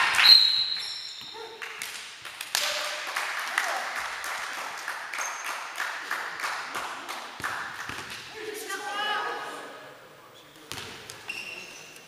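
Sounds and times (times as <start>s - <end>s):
spectators clapping: 1.6s - 8.1s.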